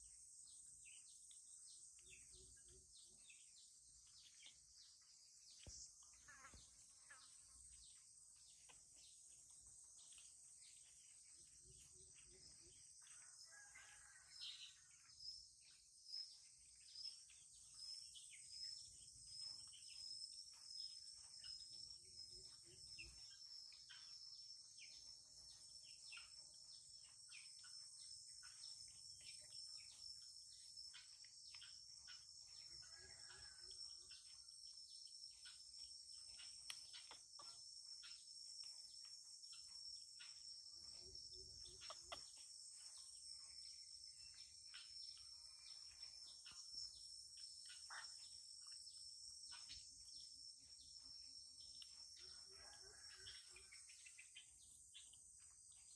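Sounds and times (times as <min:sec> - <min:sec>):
crickets trilling: 0:00.0 - 0:55.9
short chirps and ticks: 0:36.2 - 0:40.4, 0:41.5 - 0:43.1.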